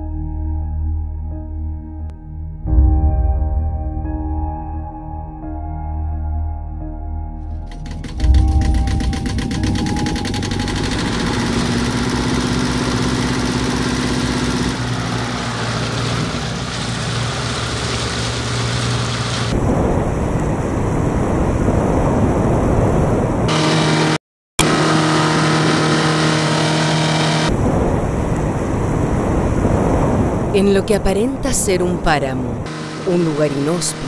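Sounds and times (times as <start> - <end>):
motorboat engine running: 7.5 - 30.5, 31.2 - 34.0
hull rushing through water: 8.2 - 23.5, 24.8 - 30.6.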